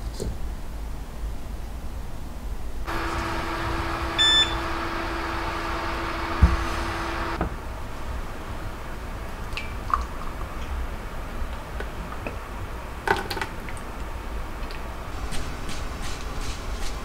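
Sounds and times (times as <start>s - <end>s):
low steady hum: 2.8s - 13.0s.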